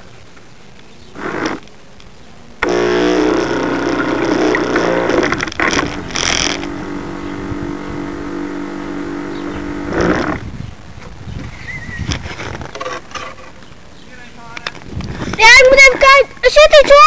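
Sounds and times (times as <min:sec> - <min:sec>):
model boat motor running: 0:02.6 - 0:10.4.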